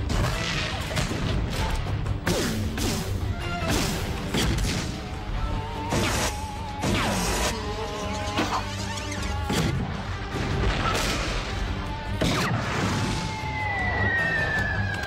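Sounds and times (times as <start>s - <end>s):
action music: 0.0s - 15.0s
falling whistle: 13.2s - 15.0s.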